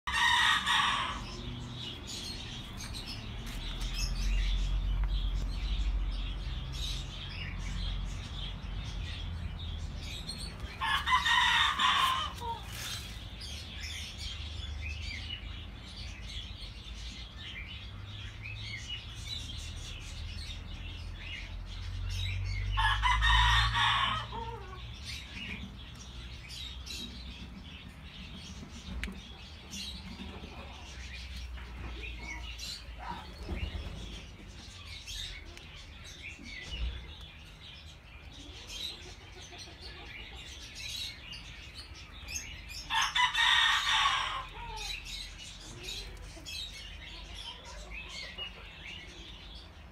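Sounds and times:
rooster crowing: 0.1s - 1.4s, 10.8s - 12.7s, 22.8s - 24.8s, 42.9s - 45.0s.

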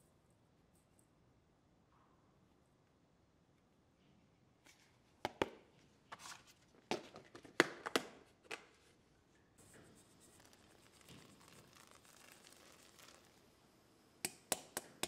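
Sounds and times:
kettle hissing faintly: 9.6s - 15.0s
sharp clicks and taps: 14.2s - 15.0s.

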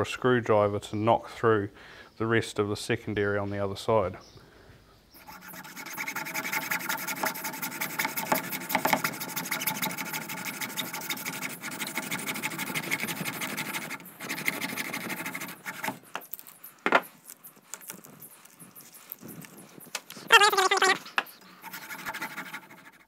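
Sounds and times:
hacksaw rasping through metal: 5.2s - 16.0s.

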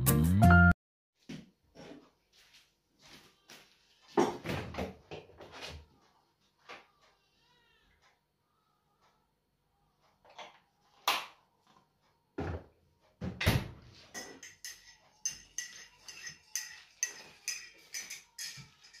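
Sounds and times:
spoon clinking against mug: 14.1s - 19.0s.

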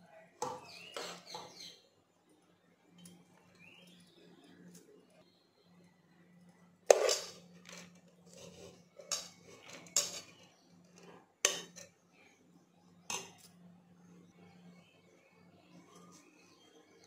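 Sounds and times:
metal spoon clanking against pots: 0.4s - 1.7s, 6.9s - 12.0s, 13.0s - 13.6s.

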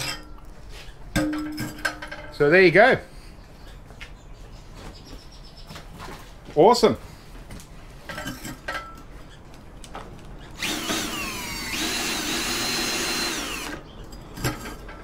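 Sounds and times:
cordless drill whining: 10.6s - 13.8s.

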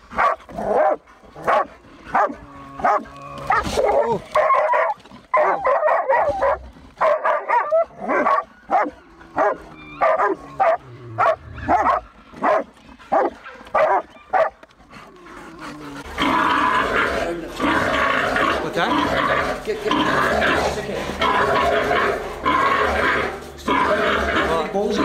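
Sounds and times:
dogs barking rapidly: 0.0s - 15.1s.

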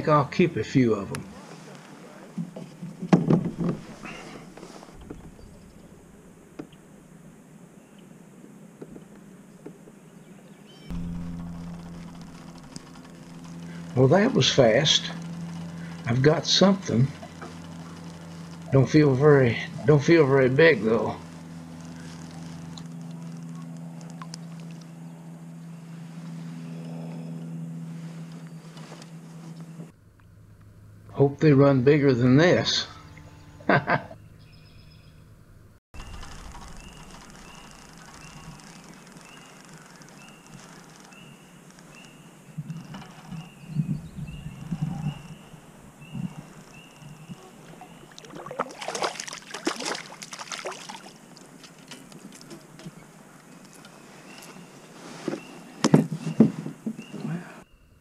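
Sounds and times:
electric motor humming: 10.9s - 31.1s, 36.0s - 48.3s
fish splashing at surface: 47.9s - 51.8s.

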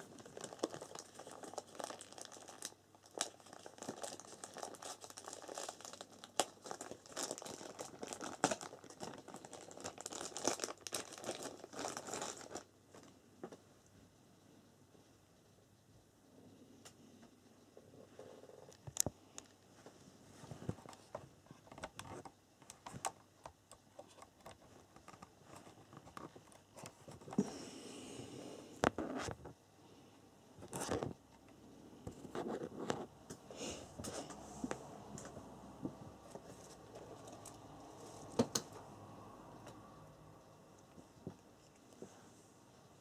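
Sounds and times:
cables clicking and rustling: 18.4s - 27.5s.

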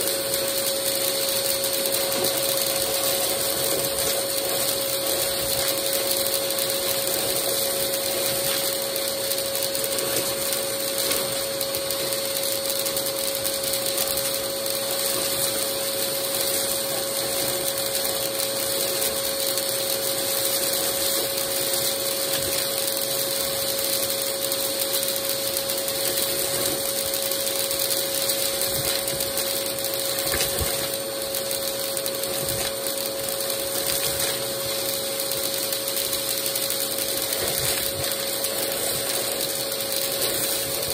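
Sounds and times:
vacuum cleaner whining: 0.0s - 40.9s.

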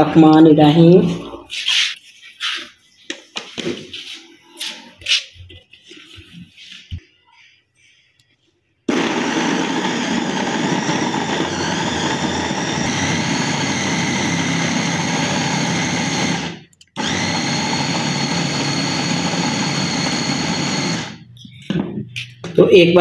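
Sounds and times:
food chopper motor running: 8.9s - 21.3s.

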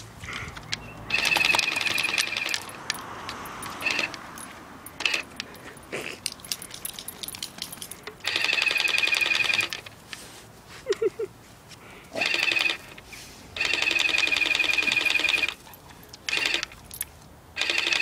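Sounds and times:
water blaster pump whining: 1.1s - 2.6s.

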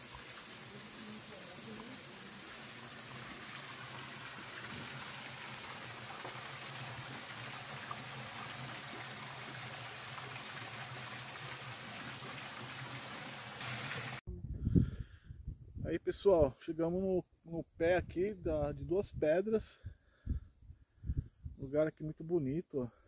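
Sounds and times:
water running and splashing: 0.0s - 14.2s.

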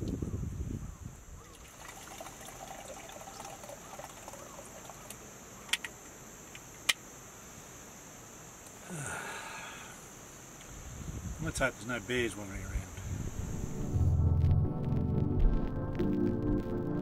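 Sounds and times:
liquid trickling into tumbler: 1.4s - 5.2s.

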